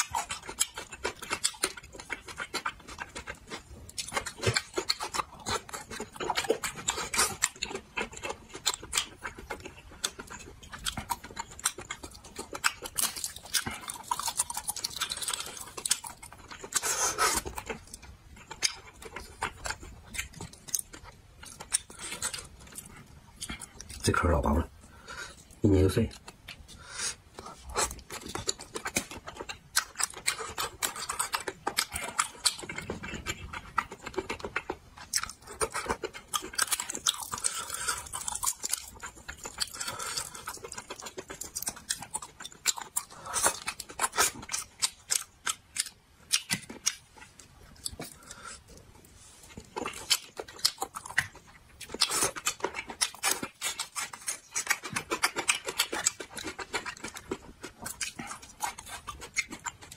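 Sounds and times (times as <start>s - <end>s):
person eating and slurping: 0.0s - 17.8s, 26.7s - 45.2s.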